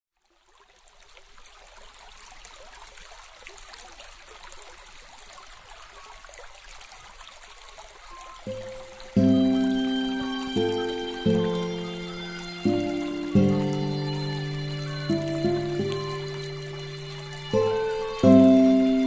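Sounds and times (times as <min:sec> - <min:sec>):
steady ambient hiss: 0:08.5 - 0:19.0
sustained music note: 0:08.5 - 0:19.0.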